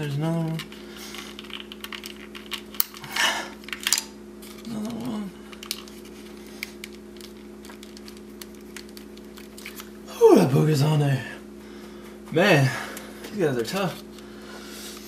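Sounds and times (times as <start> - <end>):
steady low hum: 0.0 - 15.0
plastic connectors clicking and rattling: 1.3 - 3.0, 5.6 - 6.0.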